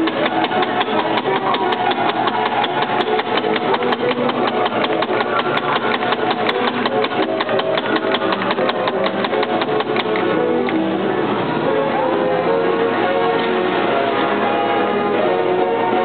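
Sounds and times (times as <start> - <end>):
mechanical automaton clattering: 0.0 - 10.2
music box music: 0.0 - 11.2.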